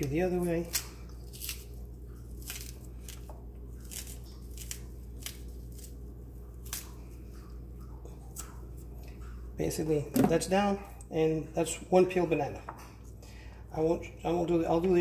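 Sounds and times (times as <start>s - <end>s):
banana peel snapping: 0.0s - 6.0s, 6.6s - 7.0s.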